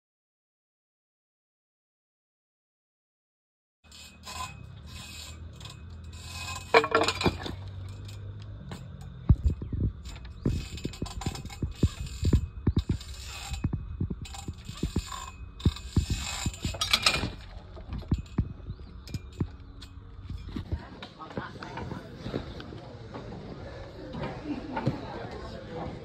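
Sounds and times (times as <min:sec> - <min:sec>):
rings rattling on metal hangers: 0:03.9 - 0:20.8.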